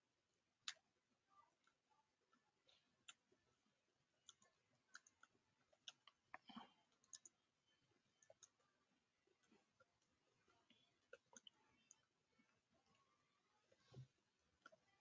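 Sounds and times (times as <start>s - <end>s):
keyboard typing clicks: 5.9s - 7.4s.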